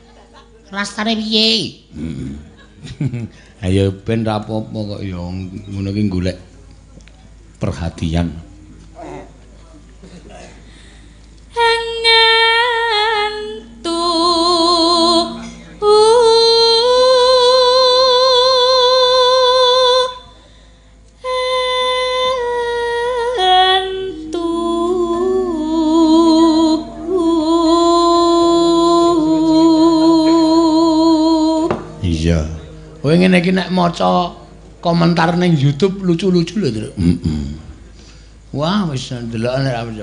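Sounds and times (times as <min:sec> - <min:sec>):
woman singing with vibrato: 0:11.5 - 0:20.4, 0:21.2 - 0:32.0
low sustained tones: 0:11.5 - 0:37.1.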